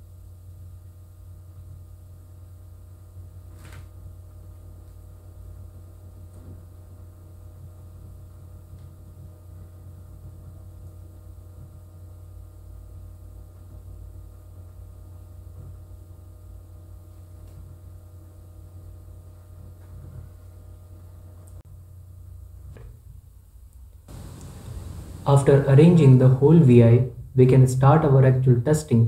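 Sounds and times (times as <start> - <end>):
low electrical hum: 0.0 - 29.0
faint steady tones: 24.1 - 26.2.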